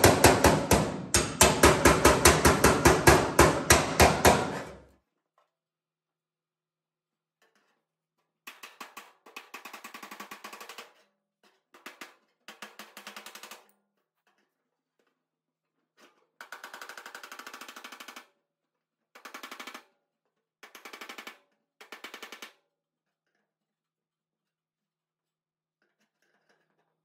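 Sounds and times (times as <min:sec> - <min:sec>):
hand hammer tapping sheet metal: 0:00.0 - 0:04.9.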